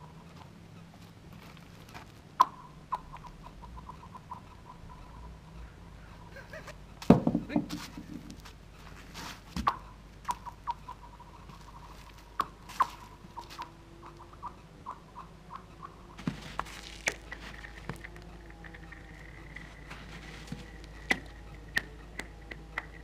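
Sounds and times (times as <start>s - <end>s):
stones hitting ice: 16.2s - 18.1s.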